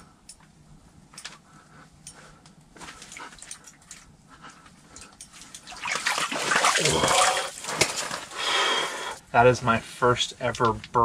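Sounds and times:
fish splashing in water: 5.7 - 8.2.

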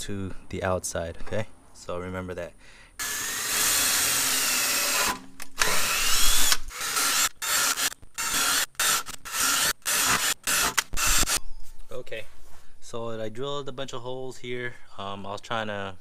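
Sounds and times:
power drill boring through rubber: 3.0 - 11.4.

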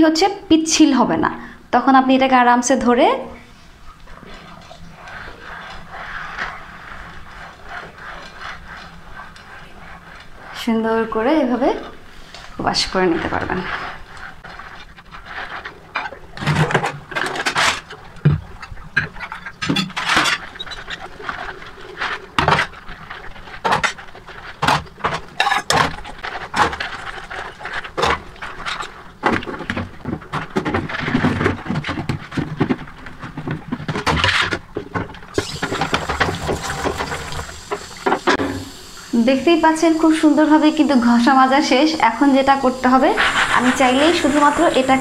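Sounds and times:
scrubbing dishes: 3.5 - 45.0
tap water running: 34.7 - 45.0.

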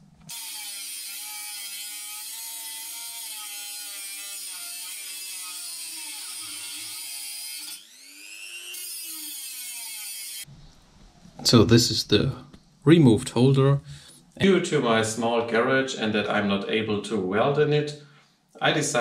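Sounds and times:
electric grinder grinding metal: 0.3 - 10.5.

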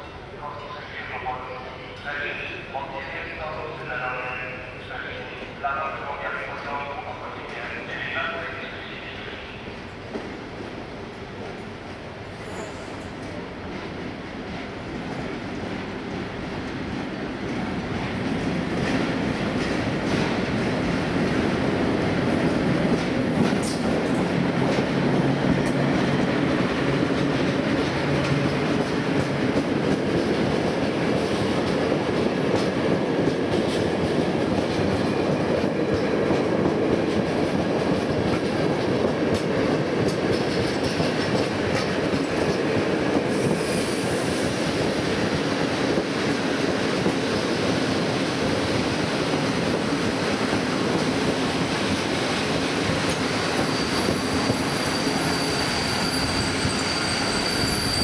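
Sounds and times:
train wheels rumbling on rails: 2.2 - 58.0
high wheel squeal: 53.5 - 58.0.

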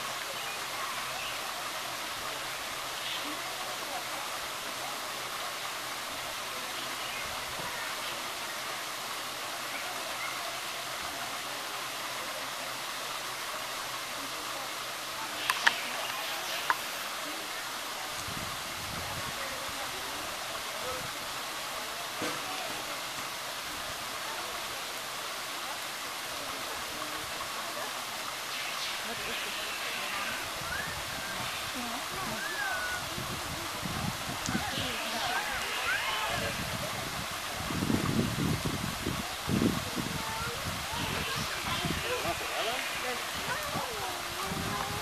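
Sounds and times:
shower spray splashing into pool: 13.2 - 18.6, 19.3 - 45.0.

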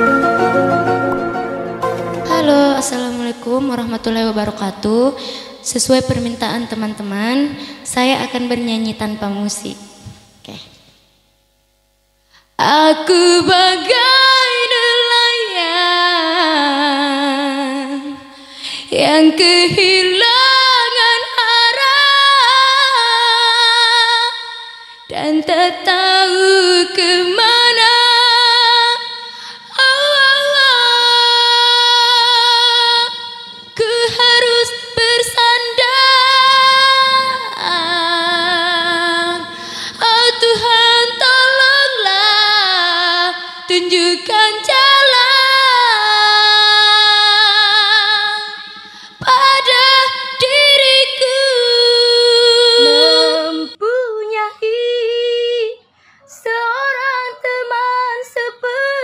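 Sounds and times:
woman singing through microphone: 2.2 - 10.6, 12.6 - 59.0
second woman singing: 49.2 - 59.0.

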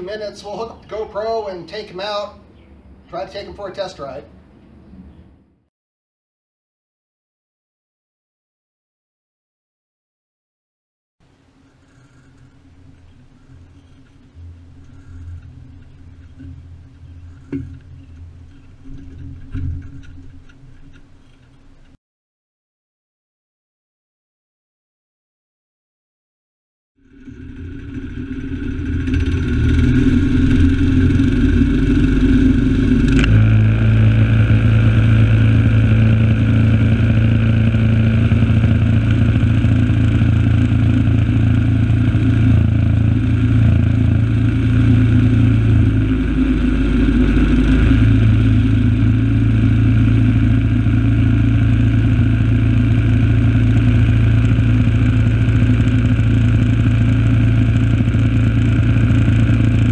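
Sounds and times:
engine running under load: 11.2 - 22.0, 27.0 - 59.9
drivetrain clatter: 11.6 - 22.0.

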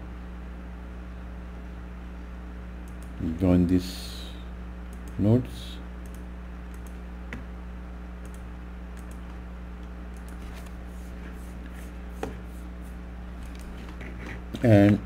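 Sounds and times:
low electrical hum: 0.0 - 15.0
computer mouse clicks: 2.8 - 3.2, 4.9 - 5.2, 6.0 - 7.0, 8.2 - 8.4, 9.0 - 9.4, 10.1 - 10.8, 13.4 - 15.0.

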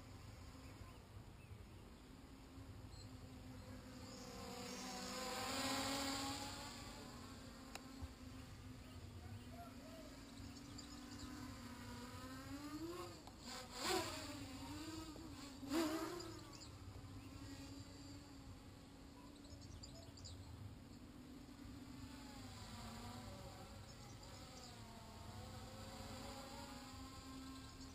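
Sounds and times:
drone propellers buzzing whine: 0.0 - 27.9.

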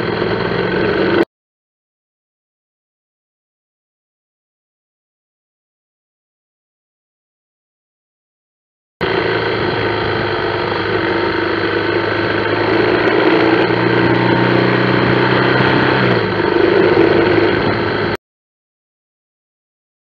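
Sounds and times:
motorcycle engine running: 0.0 - 1.3, 9.0 - 18.2
road noise: 0.0 - 1.3, 9.0 - 18.2.

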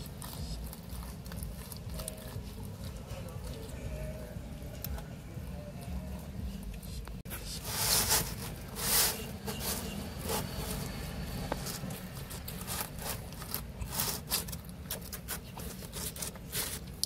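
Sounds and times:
pizza slice scraping cardboard: 7.3 - 17.0.

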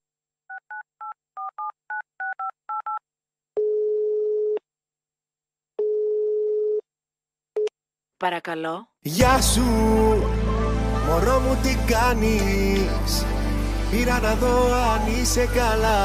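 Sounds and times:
telephone ringing tone: 3.6 - 4.6, 5.8 - 6.8.

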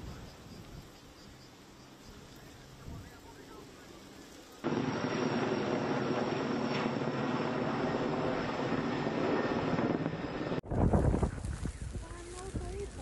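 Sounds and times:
helicopter rotor and turbine: 2.6 - 13.0.

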